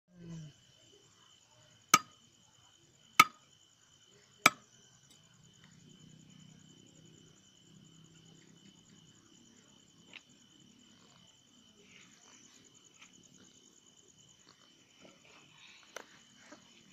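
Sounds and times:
high insect trill: 0.1 - 16.9.

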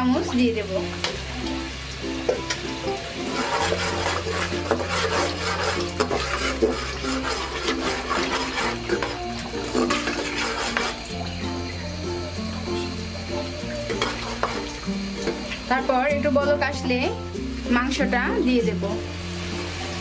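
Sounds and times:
background music: 0.0 - 20.0
light sizzling: 0.0 - 20.0
spatula scraping a pot: 3.2 - 11.4, 13.8 - 15.4.

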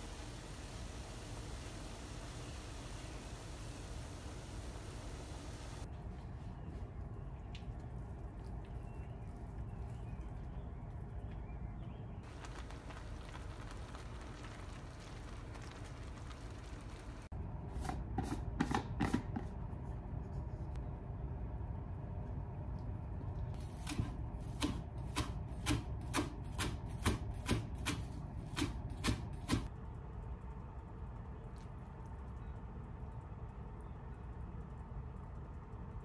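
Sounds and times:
frying pan sizzling: 0.0 - 5.9, 12.2 - 17.3
knife chopping on plastic board: 17.8 - 19.5.

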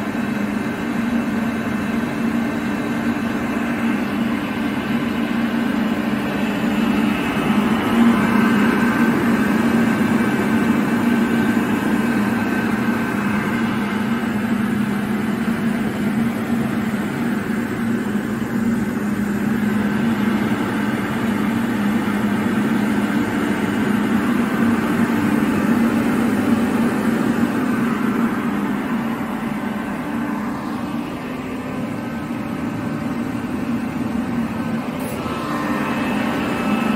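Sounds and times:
air compressor droning: 0.0 - 36.9.

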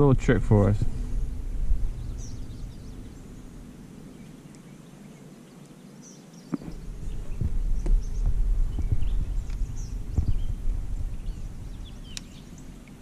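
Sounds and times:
faint bird chirps: 1.1 - 13.0
rustling handling noise on kayak: 6.4 - 13.0.

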